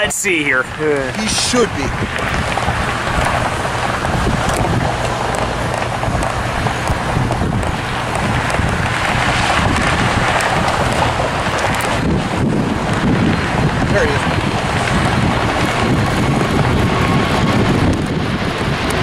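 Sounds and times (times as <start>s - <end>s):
jet engines rushing rumble: 0.0s - 19.0s.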